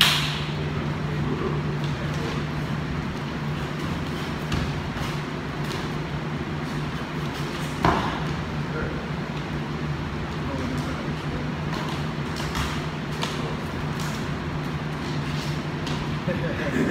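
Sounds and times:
steady low hum: 0:00.0 - 0:16.9
thuds and scuffs of sparring: 0:03.8 - 0:05.8, 0:07.3 - 0:08.3.

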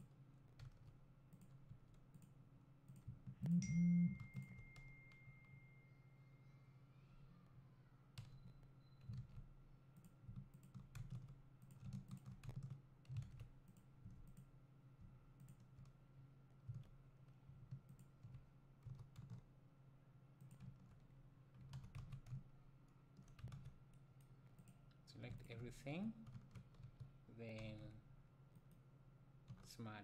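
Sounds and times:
low steady hum: 0:00.0 - 0:30.0
computer mouse and keyboard clicks: 0:08.2 - 0:14.5, 0:15.4 - 0:16.0, 0:23.2 - 0:25.6.

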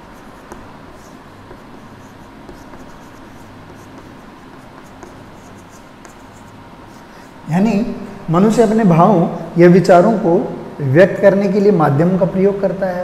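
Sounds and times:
pen scratching on writing surface: 0:00.0 - 0:07.3
steady low hiss: 0:00.0 - 0:13.0.

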